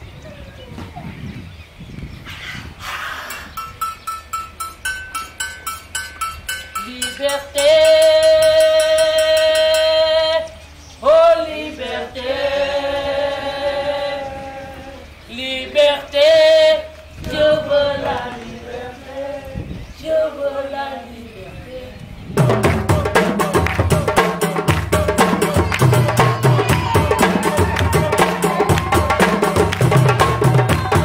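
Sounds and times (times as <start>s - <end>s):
person singing long notes: 6.8s - 31.0s.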